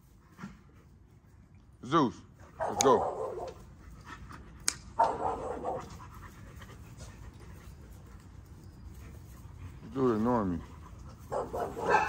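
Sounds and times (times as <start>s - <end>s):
dogs panting: 2.3s - 12.0s
sharp click: 2.7s - 3.0s, 4.6s - 5.2s.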